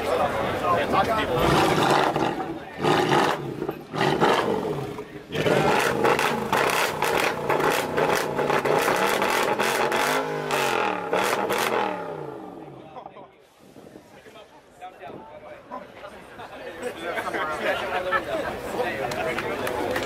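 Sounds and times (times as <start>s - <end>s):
car engine revving: 1.3s - 12.7s.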